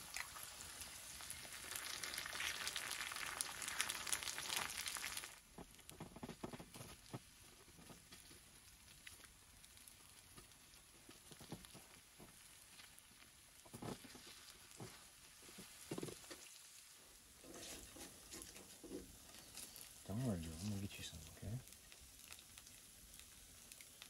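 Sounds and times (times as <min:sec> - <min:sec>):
faint food sizzling in a skillet: 0:00.0 - 0:24.0
spatula scraping and tapping pan: 0:17.4 - 0:19.6.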